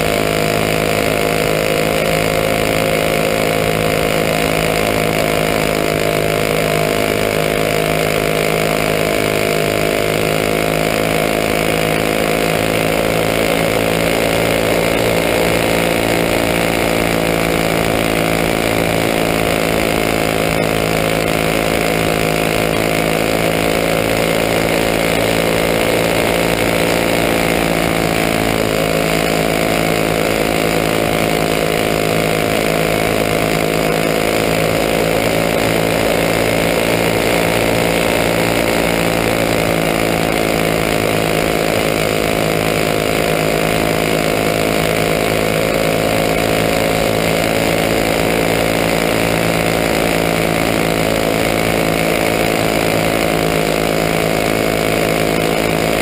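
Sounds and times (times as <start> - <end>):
kart engine buzzing: 0.0 - 56.0.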